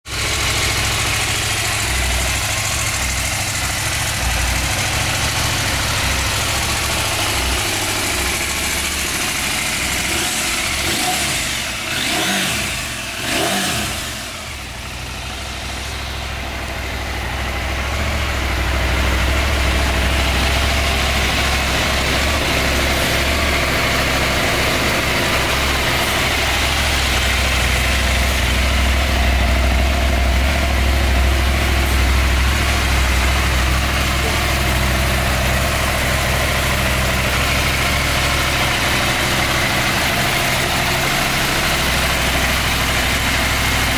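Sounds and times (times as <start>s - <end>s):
motorcycle engine idling: 0.0s - 43.9s.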